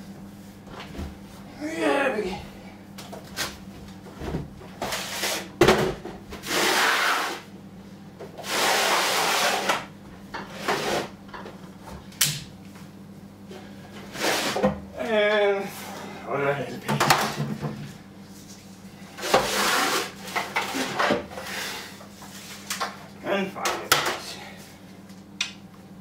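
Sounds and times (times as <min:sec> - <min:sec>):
knocks and bumps on kitchen fittings: 0:16.9 - 0:17.9.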